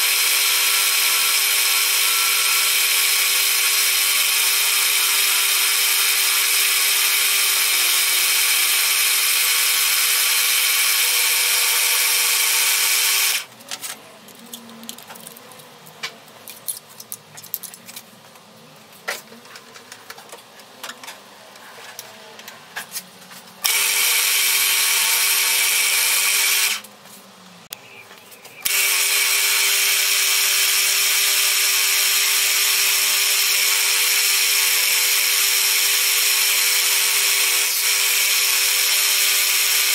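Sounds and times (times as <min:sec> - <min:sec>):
pillar drill drilling metal: 0:00.0 - 0:13.5, 0:23.6 - 0:26.8, 0:28.6 - 0:39.9.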